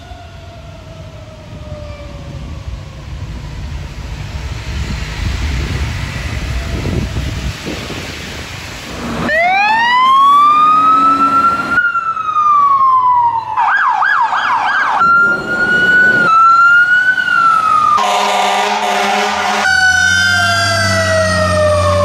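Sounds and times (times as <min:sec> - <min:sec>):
fire truck sirens: 0:00.0 - 0:22.0
traffic rumble on wet street: 0:00.0 - 0:22.0
air horn blast: 0:18.0 - 0:20.2.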